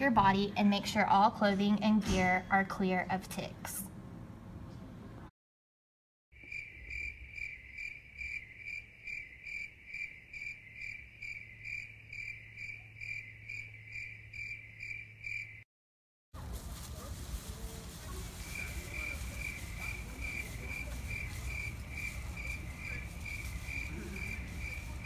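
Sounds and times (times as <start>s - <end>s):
cricket chirping: 6.4s - 15.6s, 18.5s - 25.0s.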